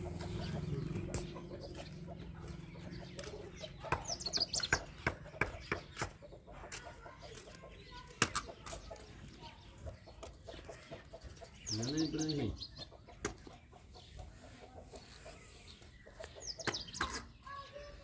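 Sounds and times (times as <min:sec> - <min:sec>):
birds calling: 0:00.0 - 0:18.0
sharp knocks and taps: 0:01.0 - 0:09.0.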